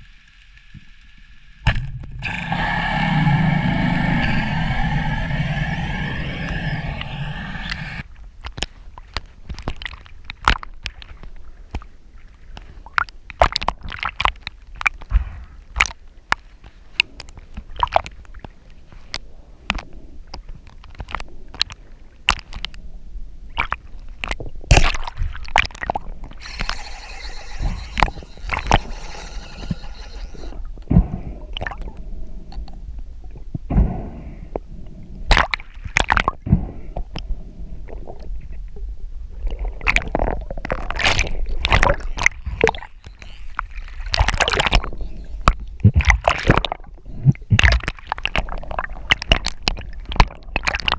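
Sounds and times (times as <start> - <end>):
water gurgling and sloshing: 2.0 - 33.8, 34.5 - 50.9
hiss: 2.2 - 8.0
sharp clicks and knocks underwater: 8.4 - 11.9, 12.5 - 22.8, 39.8 - 50.9.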